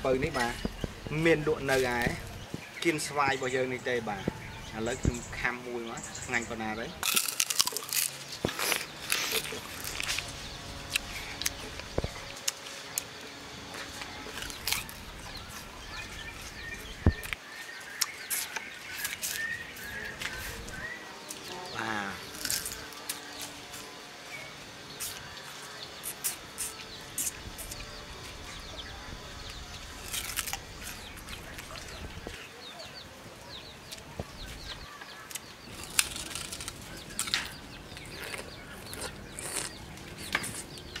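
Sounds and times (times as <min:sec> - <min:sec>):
sugarcane being bitten and chewed: 0:07.0 - 0:21.4, 0:22.0 - 0:23.9, 0:24.9 - 0:25.4, 0:26.0 - 0:28.0, 0:29.3 - 0:32.3, 0:35.3 - 0:41.0.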